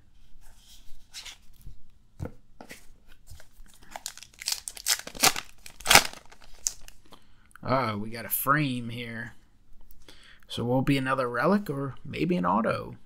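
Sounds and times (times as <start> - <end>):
cards rustling and clicking: 3.3 - 7.0
paper wrapper tearing: 3.8 - 7.0.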